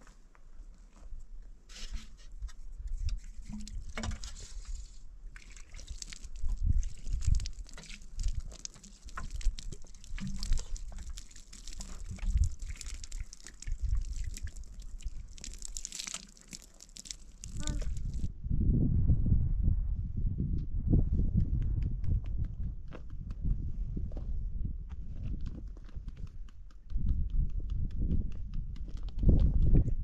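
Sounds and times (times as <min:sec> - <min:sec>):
water pouring onto soil: 0:03.0 - 0:18.3.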